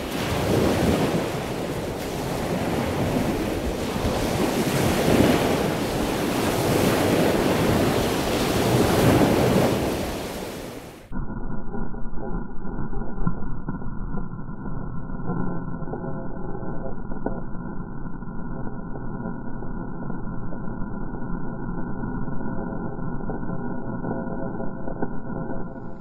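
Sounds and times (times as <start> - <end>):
wind buffeting microphone: 0.0 - 11.0
surf breaking against rocks: 0.0 - 11.1.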